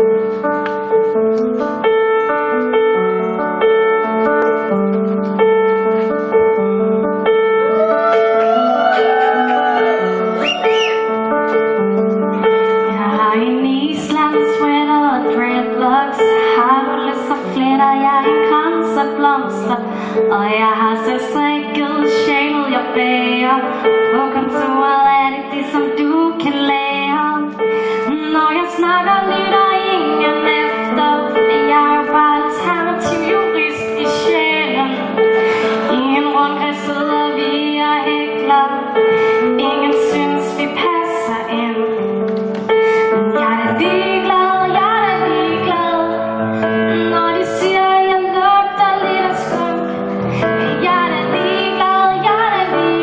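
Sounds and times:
piano chords: 0:00.0 - 0:53.0
woman singing: 0:12.9 - 0:42.0, 0:43.0 - 0:53.0.

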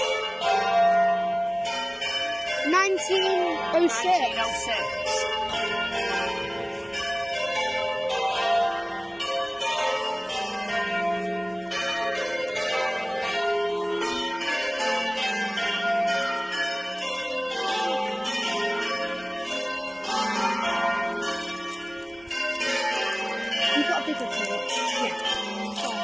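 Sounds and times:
church bells ringing: 0:00.0 - 0:26.0.

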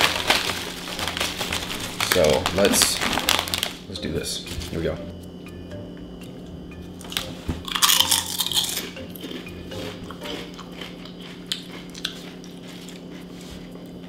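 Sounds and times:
chewing crunches: 0:07.1 - 0:14.0
potato chip bitten crunch: 0:07.1 - 0:14.0.

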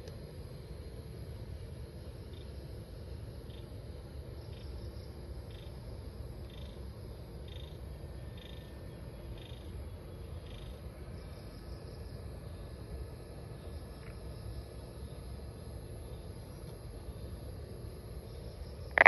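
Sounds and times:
frog chirping: 0:18.6 - 0:19.0.

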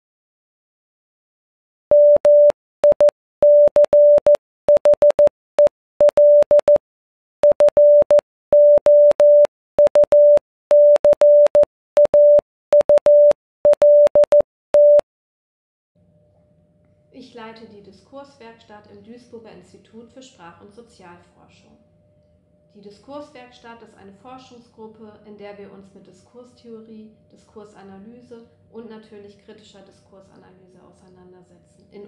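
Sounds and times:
beep clicks: 0:01.9 - 0:06.8, 0:07.4 - 0:15.0
morse code beeps: 0:01.9 - 0:06.8, 0:07.4 - 0:15.0.

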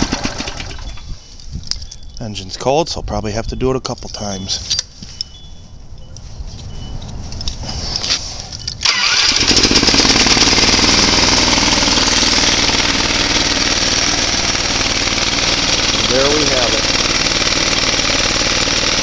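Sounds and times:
engine running: 0:00.0 - 0:01.2, 0:08.8 - 0:19.0
engine starter cranking: 0:00.0 - 0:01.2, 0:08.8 - 0:19.0.

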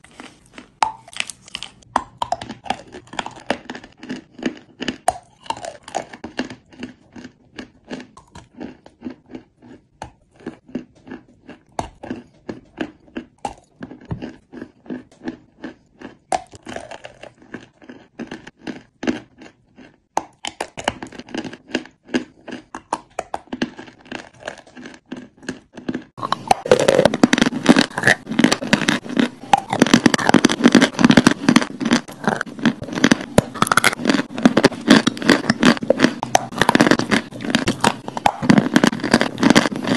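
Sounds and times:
chewing crunchy chalk: 0:00.0 - 0:39.9.

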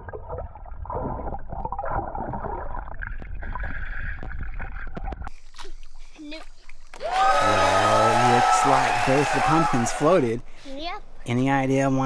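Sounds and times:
underwater gurgling and bubbles: 0:00.0 - 0:07.0.

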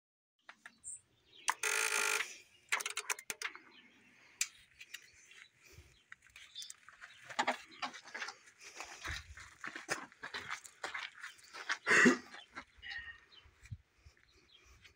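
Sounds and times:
metal clicks and knocks: 0:02.7 - 0:03.6.

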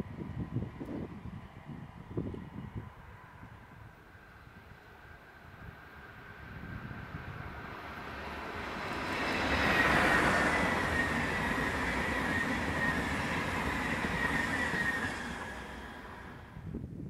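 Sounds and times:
train passing at speed: 0:00.0 - 0:16.8.

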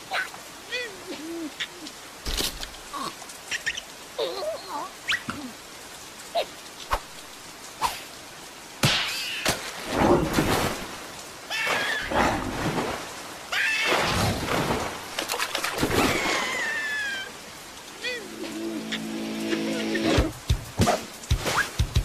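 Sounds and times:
squeaky cartoon character cries: 0:13.5 - 0:13.9, 0:16.2 - 0:17.3.

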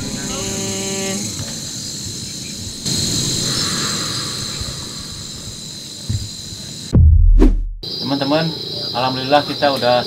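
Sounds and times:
night insects chirring: 0:00.0 - 0:07.0, 0:07.8 - 0:10.0
low rumbling noise: 0:06.9 - 0:07.8.

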